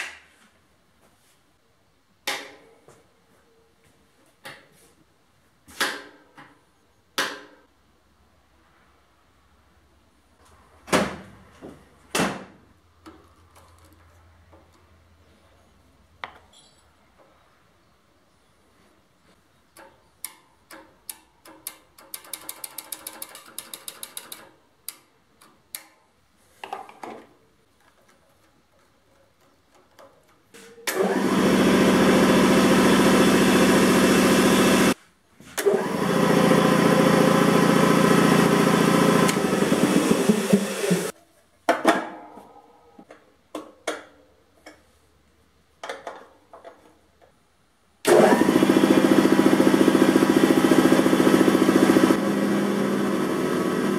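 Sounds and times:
air compressor droning: 31.0s - 35.0s, 35.6s - 41.1s, 48.1s - 53.9s.

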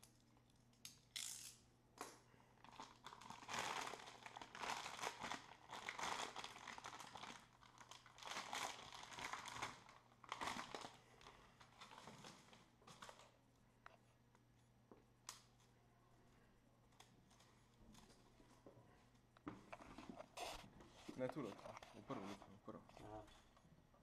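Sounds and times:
plastic bag crinkling: 2.6s - 13.2s.

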